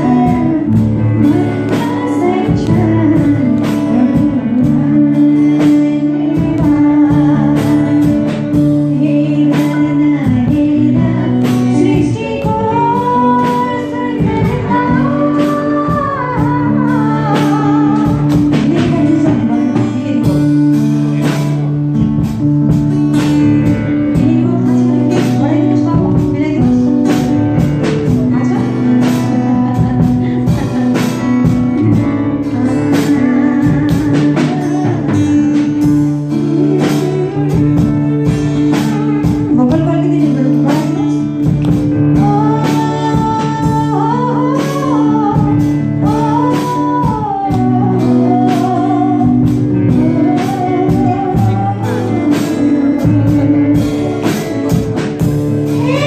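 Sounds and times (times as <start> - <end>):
woman singing into microphone: 0.0 - 56.0.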